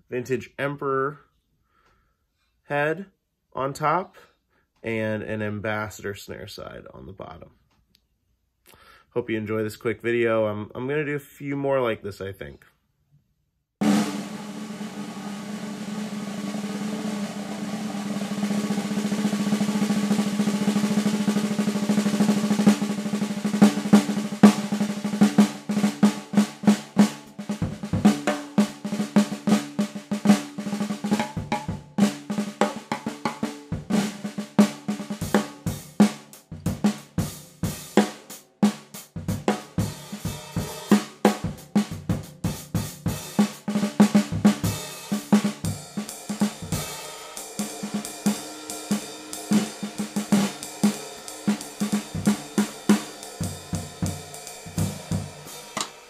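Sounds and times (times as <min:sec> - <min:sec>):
snare drum roll and strokes: 0:13.8 - 0:56.0.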